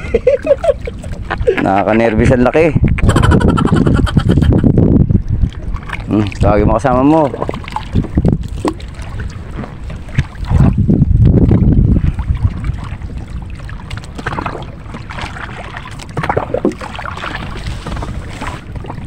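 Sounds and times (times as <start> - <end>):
wind rumbling on microphone: 0.0 - 19.0
sharp knocks from boat: 8.5 - 8.9, 16.0 - 18.2.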